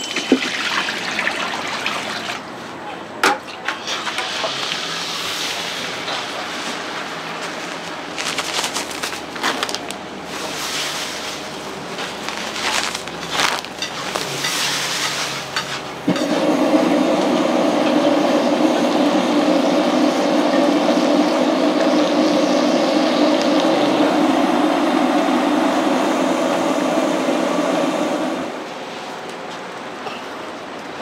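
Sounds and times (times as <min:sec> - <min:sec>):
cooking clatter: 0:00.0 - 0:00.6, 0:12.5 - 0:16.5
steady rushing noise: 0:22.3 - 0:29.0.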